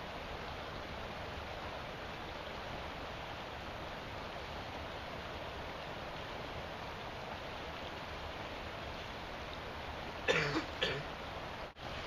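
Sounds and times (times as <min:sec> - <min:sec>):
steady background hiss: 0:00.0 - 0:12.0
person coughing: 0:10.3 - 0:11.0.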